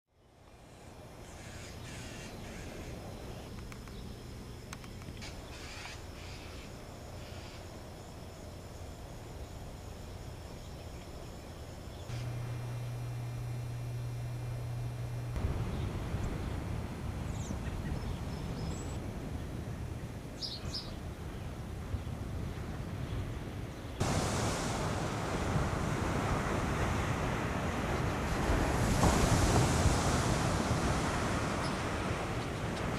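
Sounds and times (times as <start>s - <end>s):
distant ocean surf: 0.3s - 32.9s
small birds chirping: 0.6s - 7.7s
faint ticks: 3.5s - 4.0s, 4.7s - 6.0s
low rumble: 12.1s - 19.4s.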